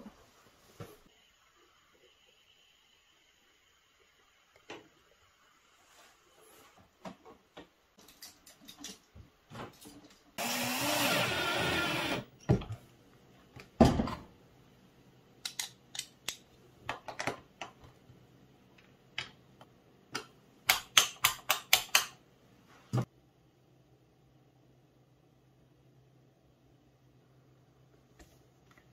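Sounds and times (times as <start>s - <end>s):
cordless drill driving screw: 10.4s - 12.3s.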